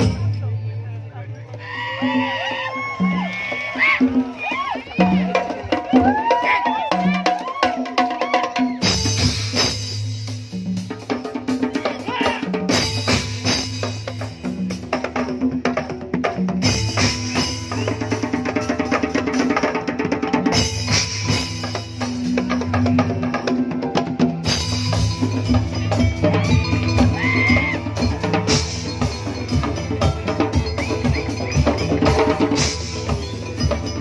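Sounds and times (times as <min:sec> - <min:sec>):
drums playing driving rhythm: 0:00.0 - 0:34.0.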